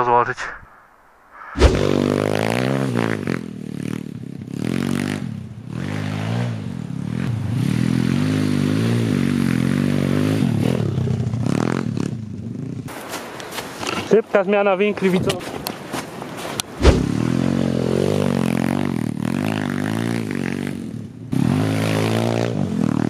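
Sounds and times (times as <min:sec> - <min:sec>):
motorbike engine revving: 0:01.6 - 0:12.9, 0:16.8 - 0:23.0.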